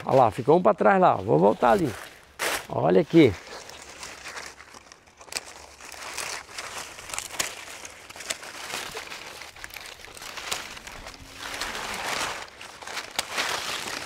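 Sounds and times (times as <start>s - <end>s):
leaves and branches rustling: 0.0s - 14.0s
sharp pruning clicks: 9.8s - 14.0s.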